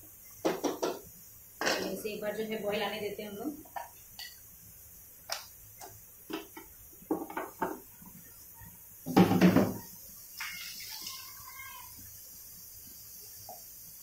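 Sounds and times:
thick gravy bubbling and popping: 0:03.6 - 0:14.0.

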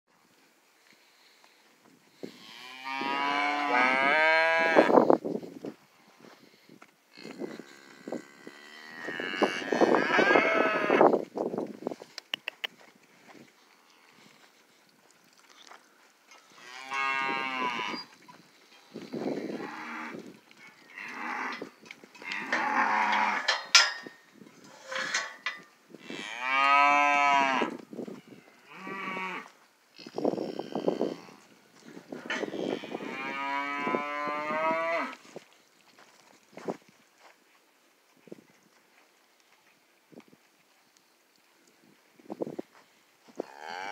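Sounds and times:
cattle mooing: 0:02.7 - 0:04.9, 0:32.5 - 0:35.2.

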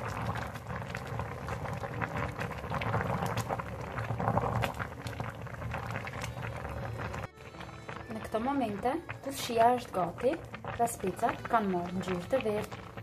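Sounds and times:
pot boiling with small pops: 0:00.0 - 0:13.0.

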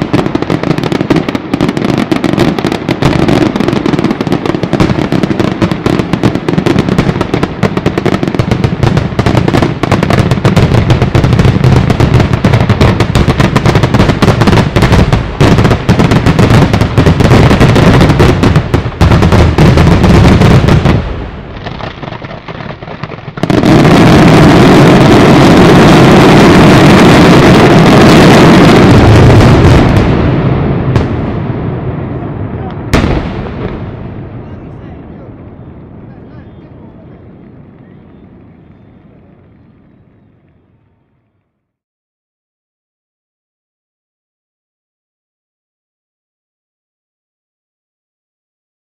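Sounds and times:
firecrackers banging rapidly: 0:00.0 - 0:31.2.

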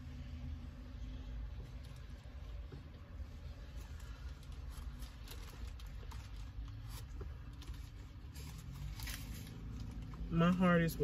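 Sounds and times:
car cabin hum: 0:00.0 - 0:08.7
rustling of handled object: 0:01.7 - 0:10.2.

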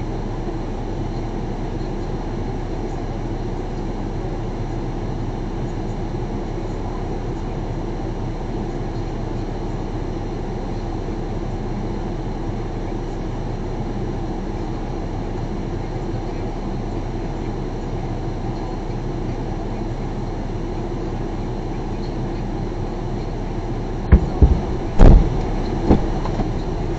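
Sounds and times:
car engine idling: 0:00.0 - 0:26.9.

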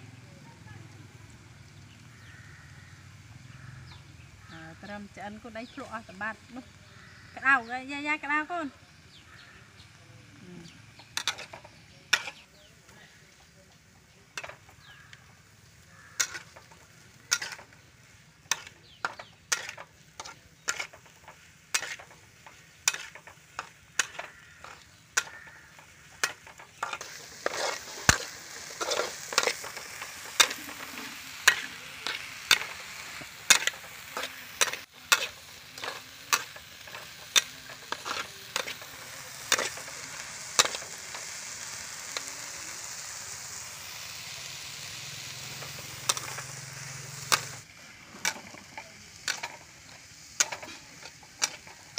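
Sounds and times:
frying sizzle: 0:00.0 - 0:51.9
metal spatula scraping a wok: 0:10.7 - 0:12.7, 0:14.3 - 0:42.2, 0:42.8 - 0:51.9.

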